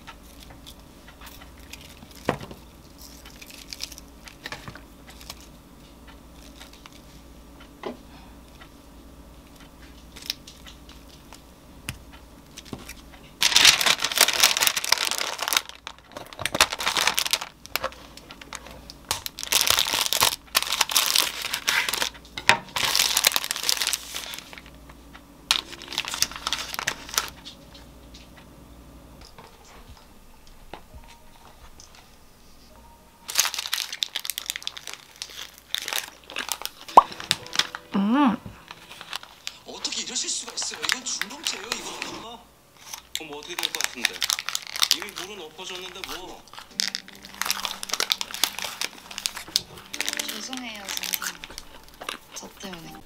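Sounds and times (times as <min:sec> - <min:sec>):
paper crinkling: 0:00.2 - 0:05.5, 0:06.3 - 0:07.2, 0:12.5 - 0:24.8, 0:25.5 - 0:27.6, 0:33.2 - 0:37.9, 0:38.6 - 0:42.2, 0:42.8 - 0:53.0.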